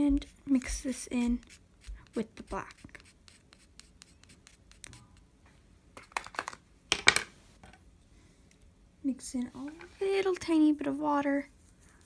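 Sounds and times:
small tool scraping pastel on plate: 0.1 - 5.0.

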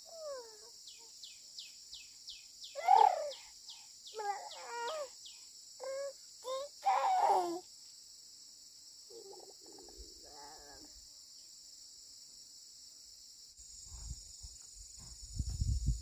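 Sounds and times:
insect drone: 0.0 - 16.0
loud wavering calls: 2.8 - 3.4.

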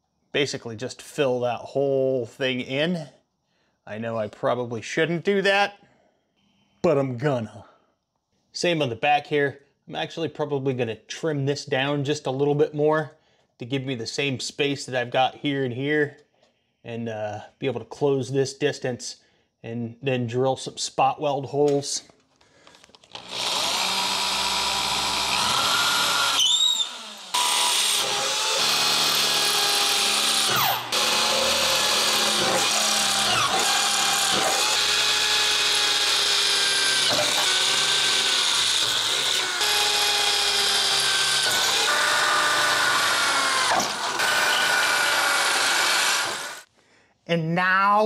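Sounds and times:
electric drill boring through metal: 23.1 - 46.7.

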